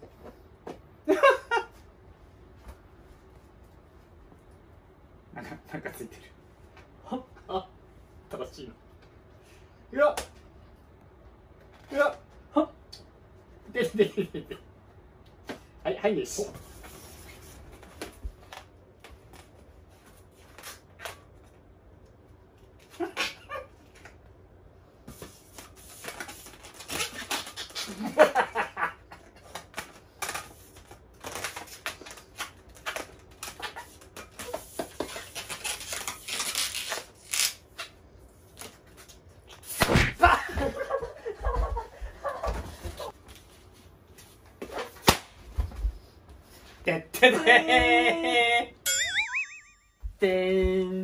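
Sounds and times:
laughter: 0:01.1 - 0:01.8, 0:13.8 - 0:14.6, 0:27.9 - 0:29.2, 0:40.2 - 0:43.1, 0:47.2 - 0:48.7.

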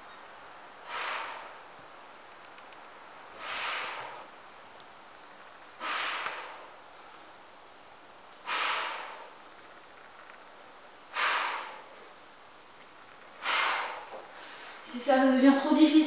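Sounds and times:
woman exhaling forcefully: 0:00.8 - 0:01.6, 0:03.4 - 0:04.3, 0:05.8 - 0:06.7, 0:08.4 - 0:09.4, 0:11.1 - 0:11.9, 0:13.4 - 0:14.7.

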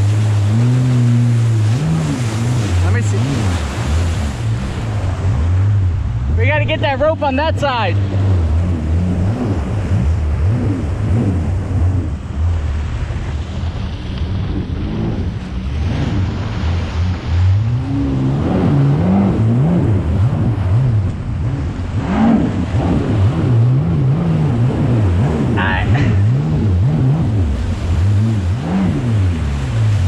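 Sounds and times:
choppy water splashing: 0:00.0 - 0:30.0
jet ski engine revving: 0:00.0 - 0:30.0
wind buffeting microphone: 0:00.0 - 0:30.0.

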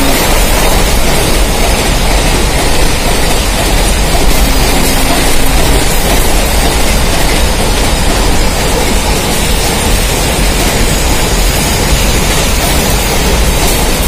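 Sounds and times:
freight train wheels rumbling: 0:00.0 - 0:14.0.

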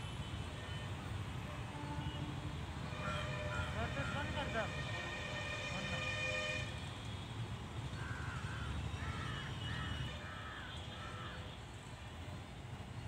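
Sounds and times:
crow cawing: 0:08.0 - 0:11.5.

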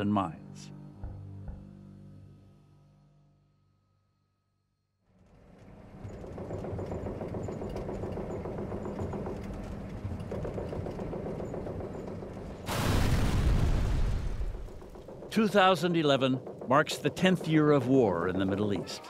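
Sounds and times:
loud explosion rumbling: 0:12.7 - 0:15.3.

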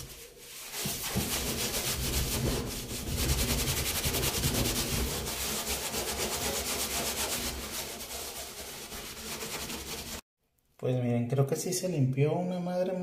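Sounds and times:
sponge scrubbing steel sink: 0:00.0 - 0:10.2.

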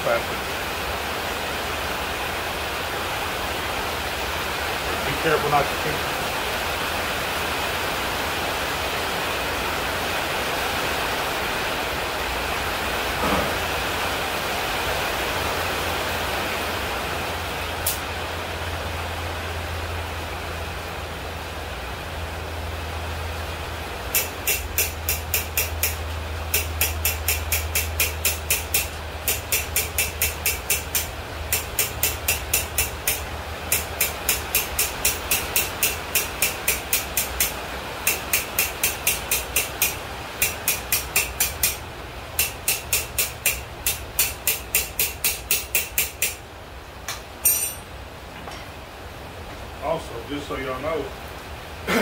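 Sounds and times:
hammer striking pipe on anvil: 0:24.1 - 0:41.8, 0:42.4 - 0:46.4, 0:47.1 - 0:47.9.

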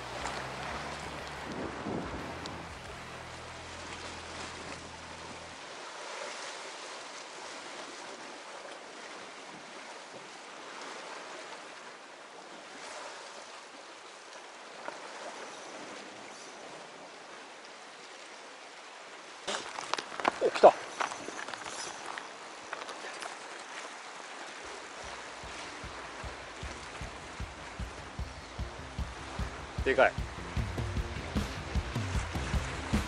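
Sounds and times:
wind rumble on microphone: 0:00.0 - 0:05.6
surf on rocky shore: 0:00.0 - 0:33.0.

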